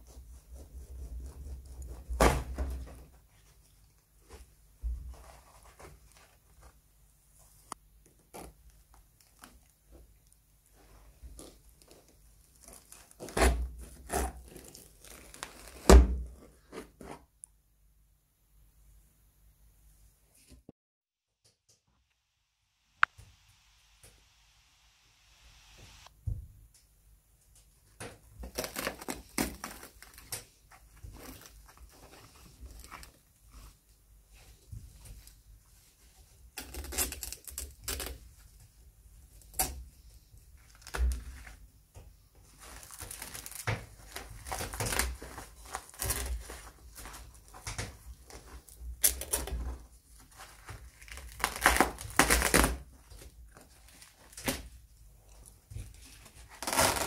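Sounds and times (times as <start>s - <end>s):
trim tearing: 51.0s - 52.8s, 56.5s - 57.0s.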